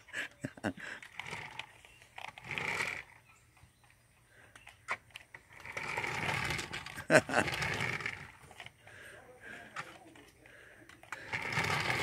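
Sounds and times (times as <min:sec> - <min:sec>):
toy car electric motor whirring: 0:00.9 - 0:03.3, 0:04.9 - 0:08.8, 0:10.9 - 0:12.0.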